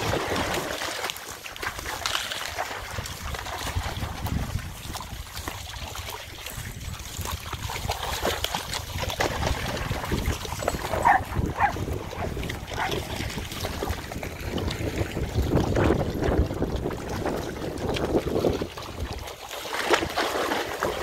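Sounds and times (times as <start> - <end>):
wind rumbling on microphone: 0.0 - 0.7, 2.8 - 21.0
dogs splashing through water: 0.0 - 21.0
dog yelping: 10.9 - 13.0.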